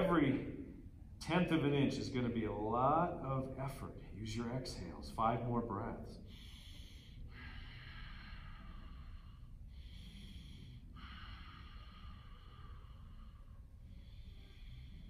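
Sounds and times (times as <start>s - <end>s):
man breathing slowly: 6.2s - 15.0s.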